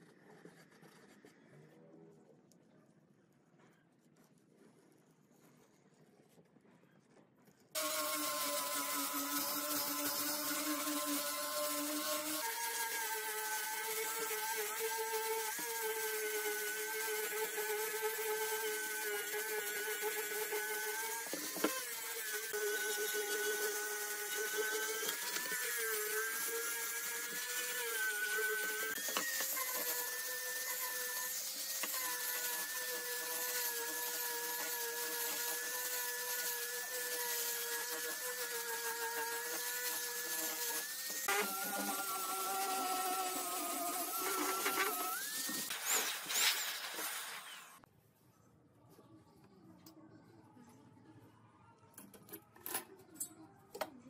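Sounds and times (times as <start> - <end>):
angle grinder sanding wood: 7.8 - 47.8.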